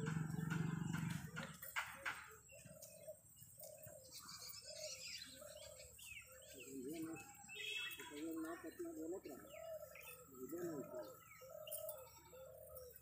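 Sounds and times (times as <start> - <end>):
low engine hum: 0.0 - 1.7
doves cooing: 0.0 - 13.0
faint bird chirps: 0.0 - 13.0.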